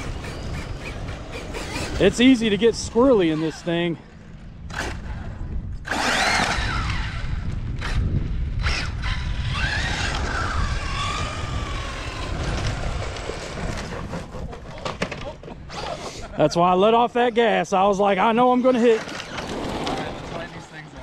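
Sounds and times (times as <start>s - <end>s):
electric motor whining: 0.0s - 3.6s, 5.8s - 14.1s.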